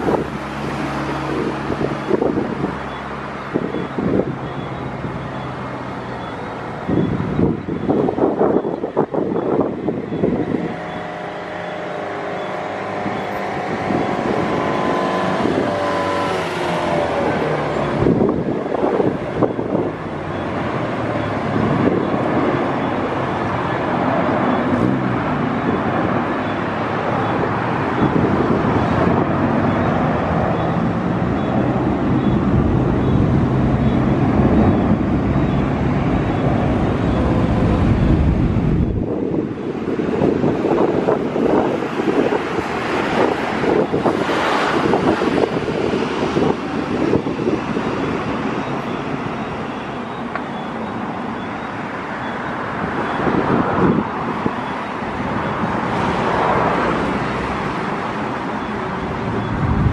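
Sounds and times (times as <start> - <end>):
jet engine roar: 0.0 - 59.9
jet engines whining: 6.8 - 20.4, 21.8 - 51.4, 58.1 - 59.9.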